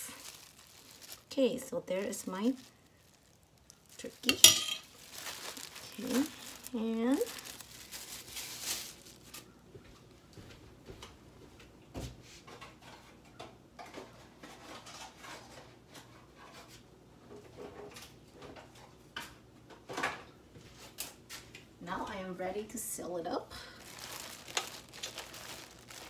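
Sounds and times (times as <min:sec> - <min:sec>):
hands rustling and clicking: 0:23.8 - 0:26.0.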